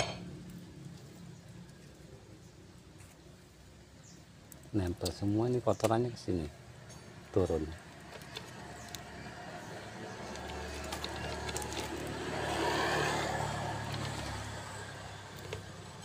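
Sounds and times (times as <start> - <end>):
road noise: 0.0 - 16.0
vehicle engine rumble passing: 6.7 - 16.0.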